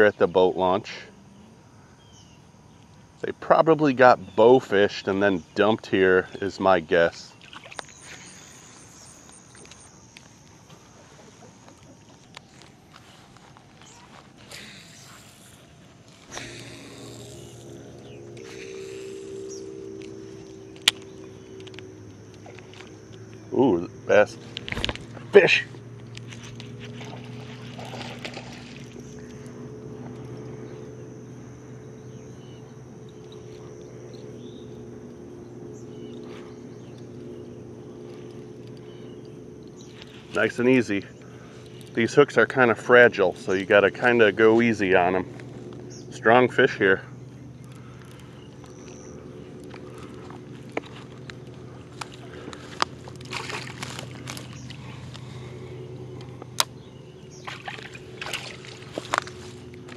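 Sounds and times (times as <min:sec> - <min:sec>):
insects chirring: 0:00.0 - 0:59.9
low hum: 0:00.0 - 0:59.9
bird chirps: 0:01.3 - 0:02.9, 0:10.9 - 0:23.6, 0:30.2 - 0:42.1, 0:45.0 - 0:52.6, 0:54.3 - 0:59.9
fish thrashing and splashing in water: 0:07.3 - 0:08.8, 0:26.2 - 0:29.8, 0:49.6 - 0:56.2, 0:57.3 - 0:59.9.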